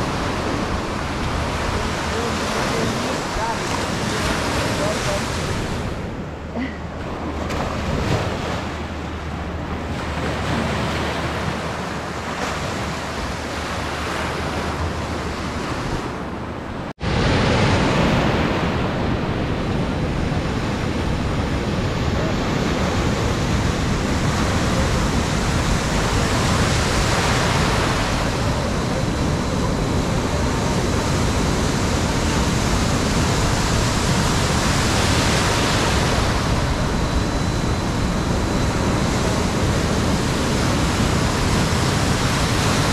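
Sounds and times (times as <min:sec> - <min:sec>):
waves breaking: 0:00.0 - 0:42.9
wind buffeting microphone: 0:00.0 - 0:42.9.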